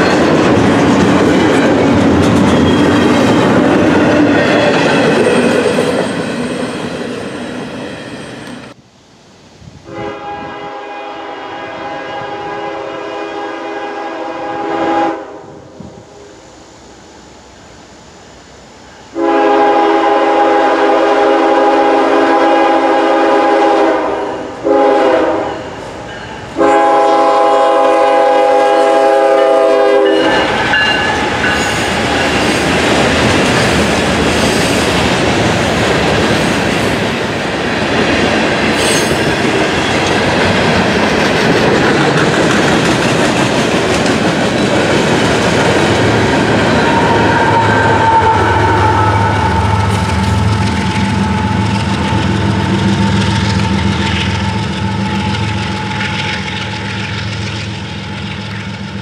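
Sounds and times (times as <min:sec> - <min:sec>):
train wheels on rail: 0:00.0 - 0:08.8, 0:09.5 - 0:59.0
train air horn blasts: 0:09.8 - 0:16.3, 0:19.1 - 0:25.9, 0:26.5 - 0:31.6, 0:46.8 - 0:52.7.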